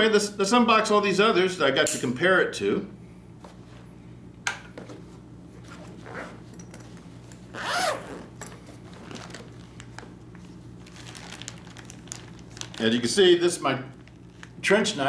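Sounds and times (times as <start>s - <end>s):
low steady hum: 0.0s - 15.0s
zipper being opened: 5.6s - 6.6s, 7.4s - 9.6s.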